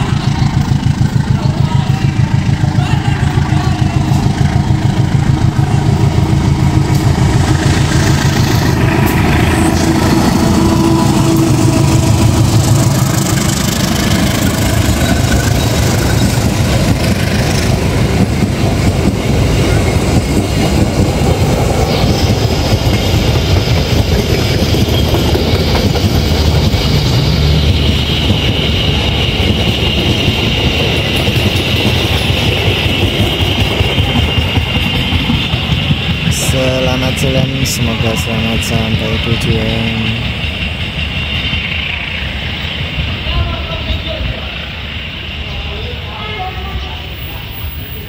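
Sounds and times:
diesel locomotive engine rumbling: 0:00.0 - 0:48.0
train wheels clattering on rails: 0:00.0 - 0:48.0
high steady tone: 0:19.1 - 0:46.1.

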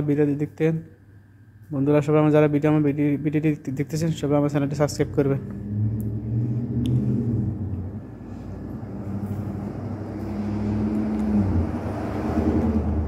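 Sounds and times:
low motor hum: 0:04.6 - 0:13.0.

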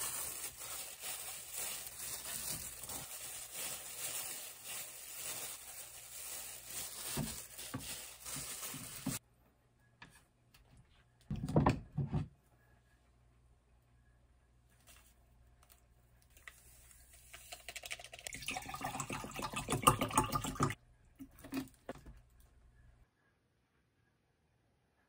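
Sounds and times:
gloved hands rustling rice: 0:00.0 - 0:09.2.

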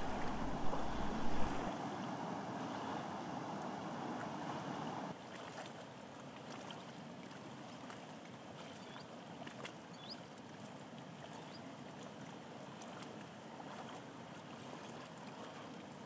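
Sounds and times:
waterfall and rapids rushing: 0:00.0 - 0:06.4.

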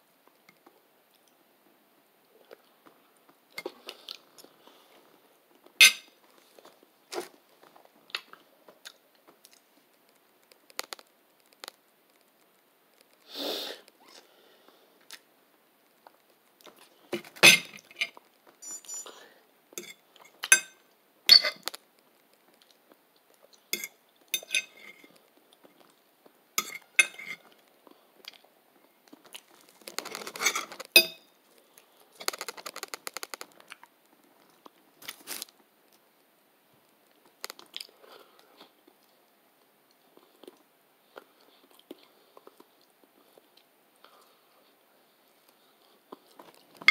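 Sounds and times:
rustling: 0:28.8 - 0:35.6
person chewing: 0:37.4 - 0:39.2, 0:39.9 - 0:44.4.

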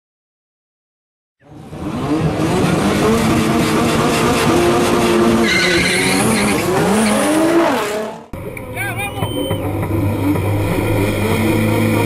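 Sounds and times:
car engines revving: 0:01.4 - 0:12.0
tyres squealing: 0:05.4 - 0:07.4.

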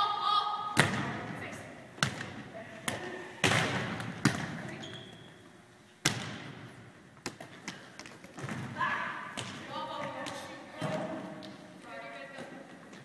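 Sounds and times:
volleyballs struck and bouncing: 0:00.7 - 0:05.2, 0:06.0 - 0:11.6.

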